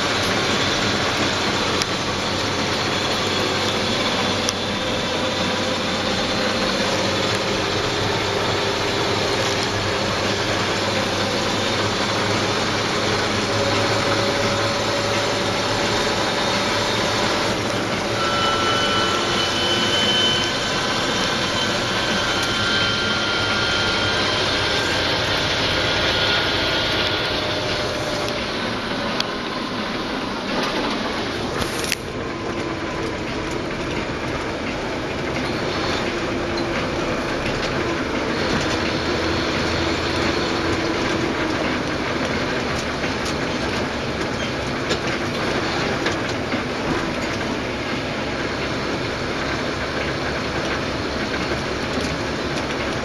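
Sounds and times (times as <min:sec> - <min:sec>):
tractor diesel engine: 0:00.0 - 0:53.0
faint high whine: 0:14.2 - 0:30.2.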